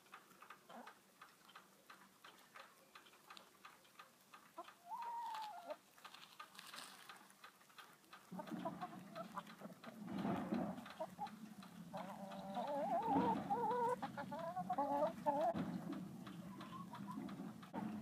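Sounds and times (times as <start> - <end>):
faint rapid ticking clicks: 0.0 - 18.0
hens clucking: 0.2 - 18.0
hen drawn-out call: 4.8 - 5.8, 11.9 - 15.6.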